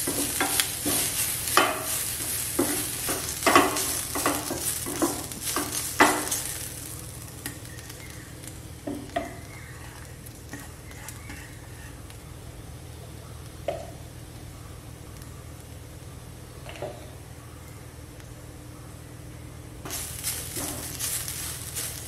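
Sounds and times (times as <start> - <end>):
wooden spatula scraping a pan: 0.0 - 6.9, 8.9 - 12.1, 19.9 - 22.0
steady sizzle: 0.0 - 18.7, 19.8 - 22.0.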